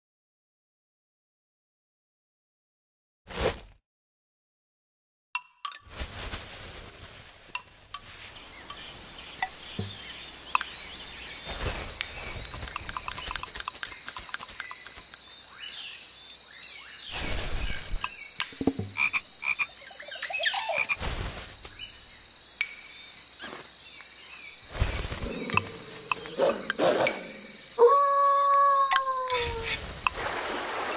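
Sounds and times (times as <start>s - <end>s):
tissue paper rustling: 5.9s - 8.5s
croaking calls: 8.6s - 21.0s, 24.7s - 30.9s.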